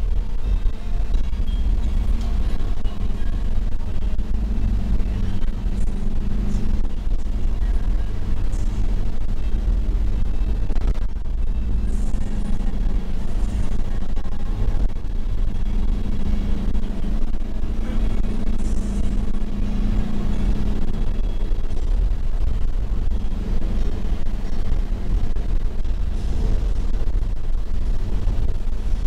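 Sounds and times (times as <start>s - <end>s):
van engine and tyre drone: 0.0s - 29.0s.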